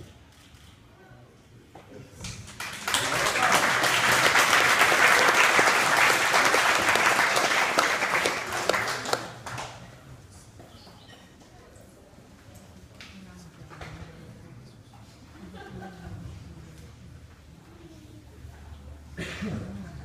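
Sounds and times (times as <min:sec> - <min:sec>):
audience applauding: 0:02.5 - 0:09.8.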